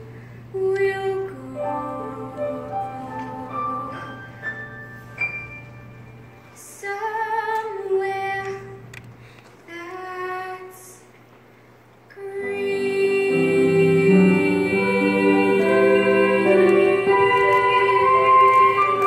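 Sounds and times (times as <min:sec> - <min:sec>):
woman singing a ballad: 0:00.5 - 0:04.4, 0:06.6 - 0:08.8
soft musical accompaniment: 0:00.6 - 0:08.8, 0:12.3 - 0:19.0.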